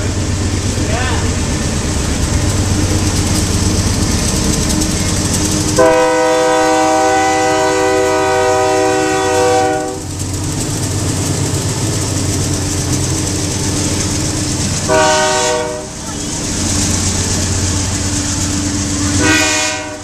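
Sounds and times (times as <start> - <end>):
freight train rumbling past: 0.0 - 20.0
locomotive air horn blast: 5.8 - 10.1, 14.9 - 16.1, 19.1 - 20.0.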